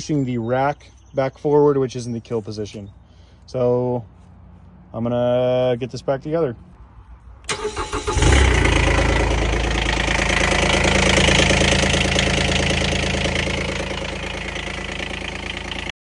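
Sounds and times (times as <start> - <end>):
diesel engine starting and running: 7.4 - 16.0.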